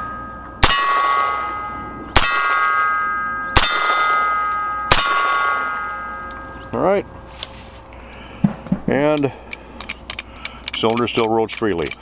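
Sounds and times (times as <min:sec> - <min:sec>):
steel target ringing: 0:00.0 - 0:07.2
revolver gunshots: 0:00.6 - 0:05.9.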